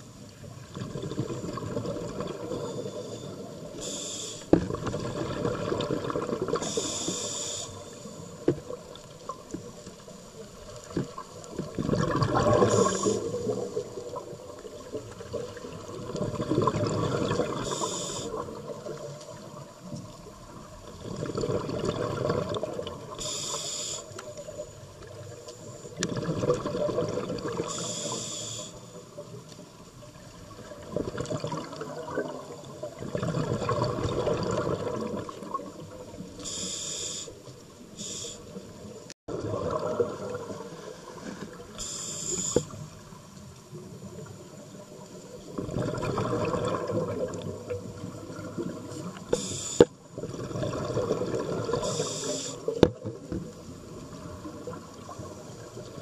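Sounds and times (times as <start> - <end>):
exhaled bubbles rushing: 0.7 - 3.0, 4.7 - 6.9, 10.8 - 19.6, 20.6 - 23.2, 26.0 - 27.8, 30.5 - 36.2, 39.3 - 41.6, 45.4 - 49.3, 50.1 - 52.1
regulator inhale hiss: 2.5 - 4.6, 6.6 - 8.4, 12.6 - 13.9, 17.6 - 18.6, 23.1 - 24.6, 27.7 - 29.0, 36.4 - 38.6, 41.2 - 43.0, 49.2 - 50.0, 51.8 - 52.8.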